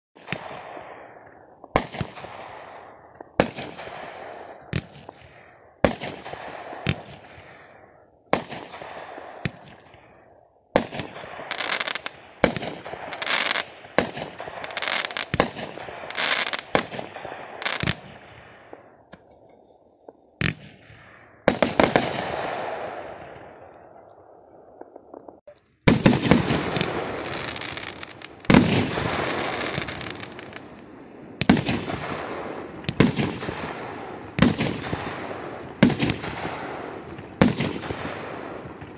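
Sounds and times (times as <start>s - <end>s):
fireworks bangs: 0.2s - 38.9s
fireworks crackling sizzle: 11.4s - 16.9s, 17.6s - 20.6s, 24.8s - 30.8s.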